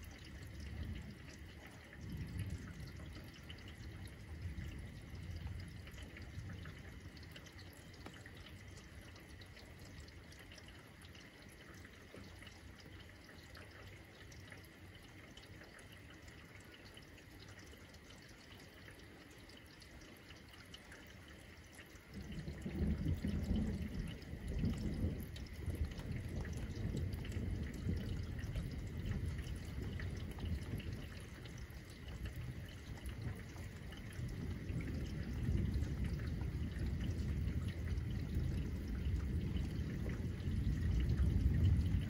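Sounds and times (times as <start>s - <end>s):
thunder rumbling: 0.0s - 7.3s, 22.1s - 42.0s
rain dripping and pattering: 0.0s - 42.0s.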